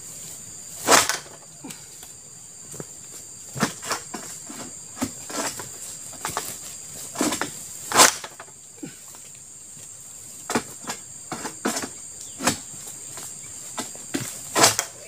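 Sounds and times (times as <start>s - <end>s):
high insect drone: 0.0s - 15.0s
sickle knocking against palm stalk: 0.8s - 1.4s, 7.2s - 8.5s, 13.8s - 15.0s.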